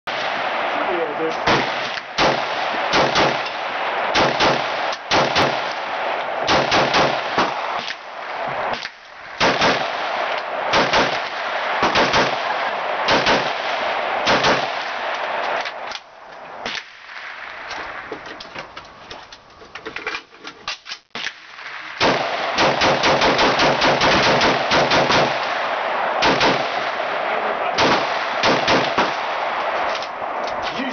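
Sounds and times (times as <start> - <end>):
rifle gunshots with echo: 0.1 - 18.2, 21.2 - 30.9.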